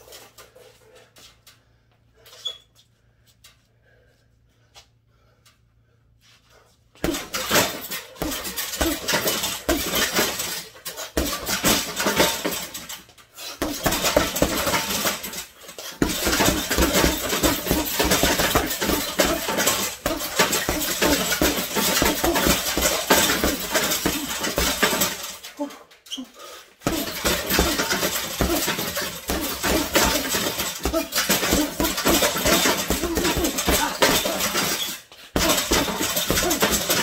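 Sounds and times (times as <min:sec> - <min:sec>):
punches hitting heavy bag: 0:07.0 - 0:10.6, 0:11.2 - 0:12.9, 0:13.6 - 0:25.4, 0:26.8 - 0:37.0.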